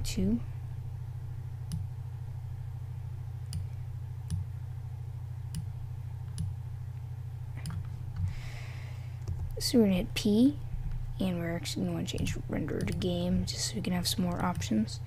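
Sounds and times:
steady low hum: 0:00.0 - 0:15.0
computer mouse clicks: 0:07.6 - 0:08.3, 0:12.2 - 0:13.1.

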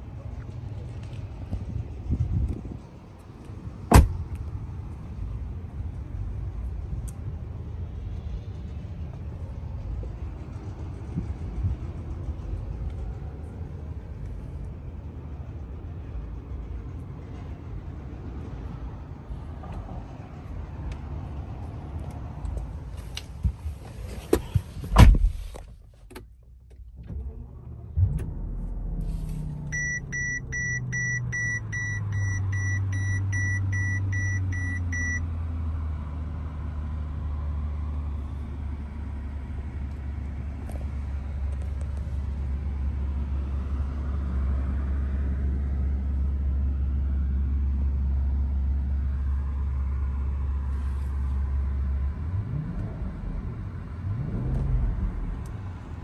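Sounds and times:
car engine starting and idling: 0:00.0 - 0:56.0
loud thump: 0:03.9 - 0:04.2
dashboard warning chime beeping: 0:29.7 - 0:35.2.

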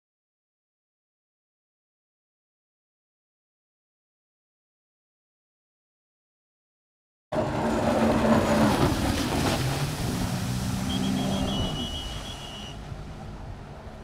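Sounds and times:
jet ski engine running hard: 0:07.4 - 0:14.0
thin high whine: 0:10.8 - 0:12.8.

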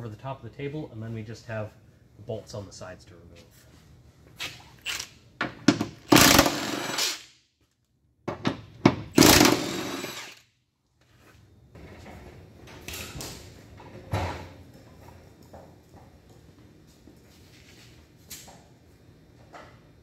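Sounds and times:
cordless power tool running: 0:09.2 - 0:10.4.

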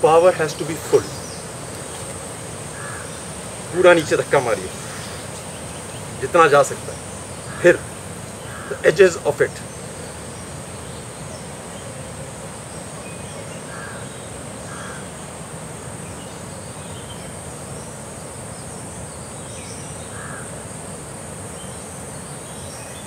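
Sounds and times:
insects droning: 0:00.0 - 0:23.0
crow cawing: 0:02.6 - 0:03.6, 0:04.7 - 0:05.4, 0:07.4 - 0:09.2, 0:13.6 - 0:15.2, 0:20.1 - 0:20.6.

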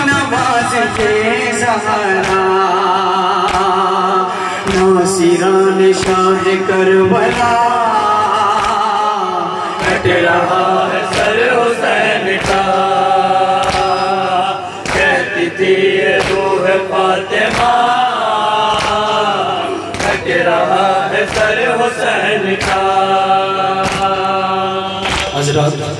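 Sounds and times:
chest-beating claps: 0:00.0 - 0:02.6, 0:03.4 - 0:05.0, 0:05.9 - 0:06.4, 0:07.1 - 0:07.8, 0:08.5 - 0:09.1, 0:09.7 - 0:25.4
men chanting through microphone: 0:00.0 - 0:25.9.

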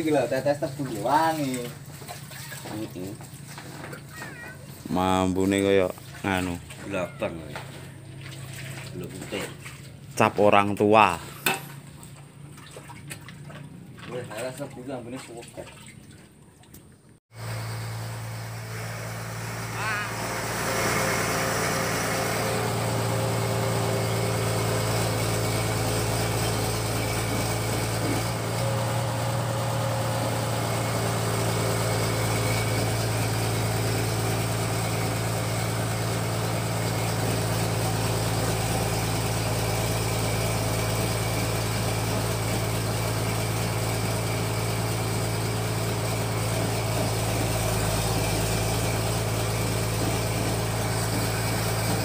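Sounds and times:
pellet machine droning: 0:17.4 - 0:52.0.

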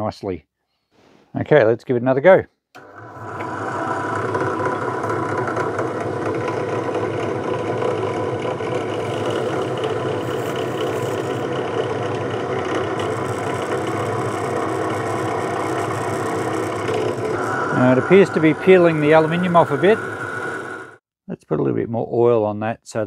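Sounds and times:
drill press motor running: 0:02.8 - 0:21.0
rivet spinner peeling aluminium: 0:02.8 - 0:21.0.

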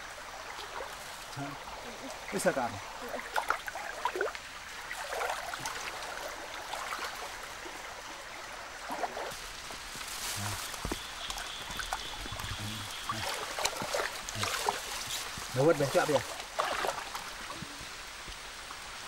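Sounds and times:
stream water running: 0:00.0 - 0:19.0
hands splashing in water: 0:11.7 - 0:15.4.

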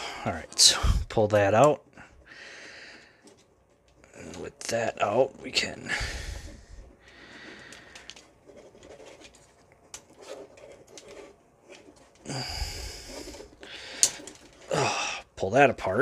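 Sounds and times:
plastic scratching and rubbing: 0:03.0 - 0:15.0.

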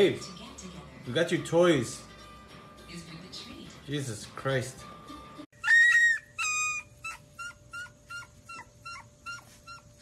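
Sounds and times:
puppies whimpering: 0:05.6 - 0:10.0.

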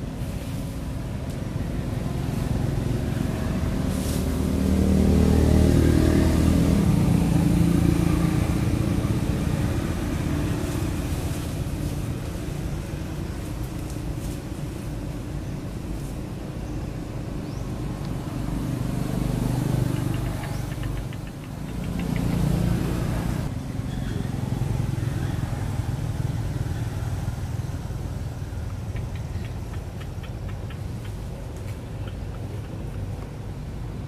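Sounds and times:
motor vehicles rumbling past: 0:00.0 - 0:34.0
faint rapid high ticks: 0:19.9 - 0:22.6, 0:28.9 - 0:33.3.

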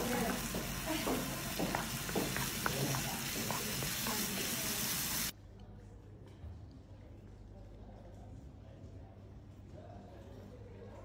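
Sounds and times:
wooden spoon scraping a pan: 0:00.0 - 0:04.9
vegetables sizzling in a frying pan: 0:00.0 - 0:05.3.

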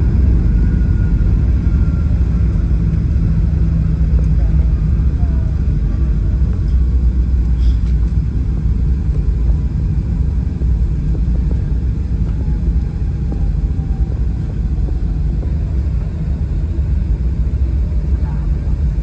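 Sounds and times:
airplane engines and wheels roaring: 0:00.0 - 0:19.0.

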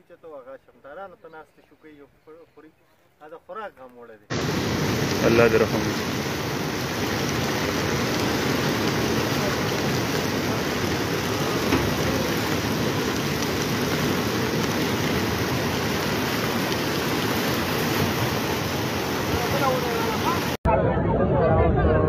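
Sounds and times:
floodwater rushing through stream: 0:04.3 - 0:20.6.

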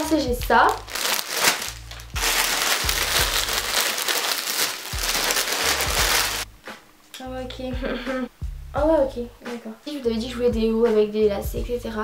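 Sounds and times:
plastic bag crinkling: 0:00.6 - 0:06.4.

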